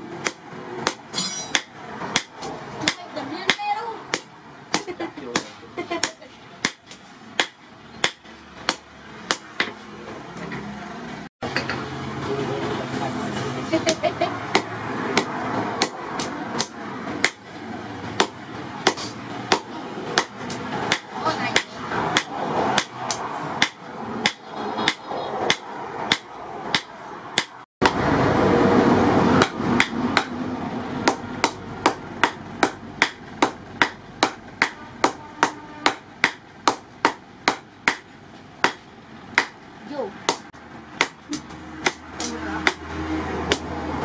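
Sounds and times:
hammer striking steel on anvil: 0.2s - 9.8s.

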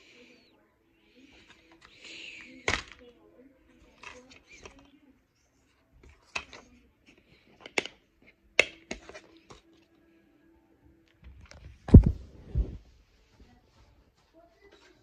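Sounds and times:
plastic case clicks and snaps: 7.6s - 8.0s, 8.6s - 9.1s.

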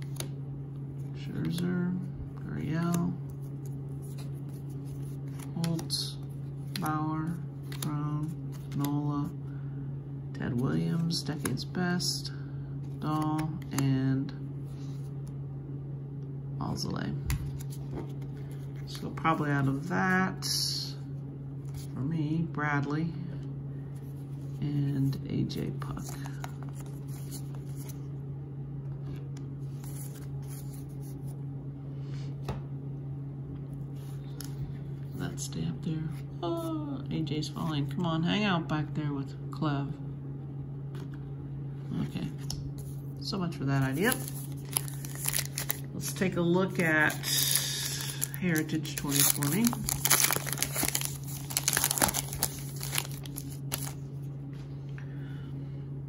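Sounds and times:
steady low hum: 0.0s - 56.0s
wrapper crinkling: 43.9s - 46.2s, 46.8s - 54.0s.

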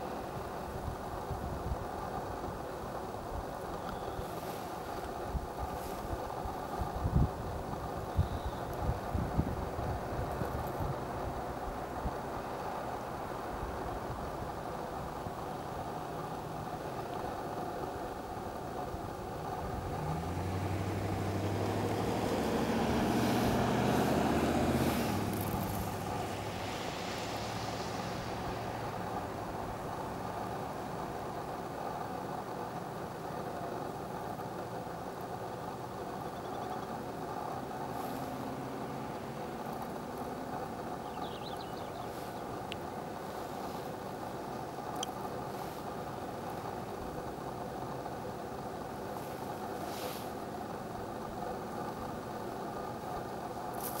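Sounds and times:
engine hum: 0.0s - 54.0s
short hiss: 49.1s - 50.4s.

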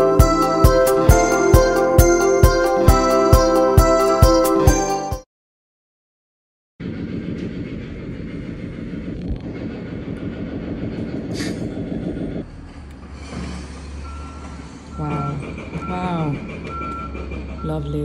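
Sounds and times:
low diesel engine hum: 0.0s - 5.1s, 6.8s - 18.0s
heavy rumbling machinery clatter: 6.8s - 18.0s.

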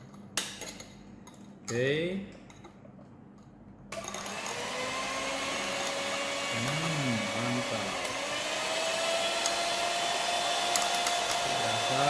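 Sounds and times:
electric hand mixer whining: 3.9s - 12.0s.

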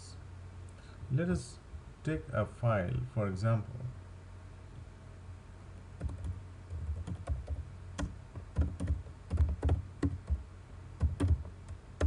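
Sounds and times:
computer keyboard typing: 6.0s - 10.4s, 11.0s - 11.8s.

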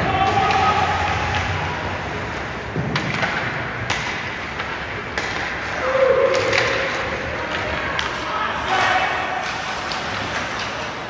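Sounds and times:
hockey sticks and puck clacking: 0.0s - 11.0s
arena crowd murmur: 5.8s - 11.0s.

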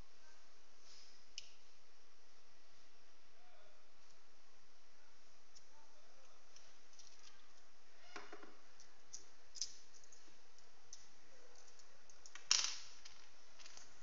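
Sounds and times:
small parts tapping on wooden table: 11.6s - 13.9s.

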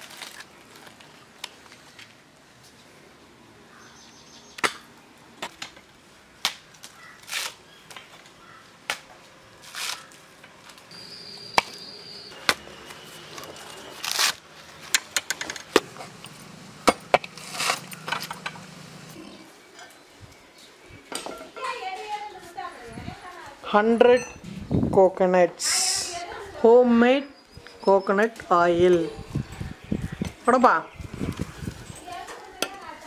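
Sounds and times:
coconuts being chopped: 12.4s - 12.7s.

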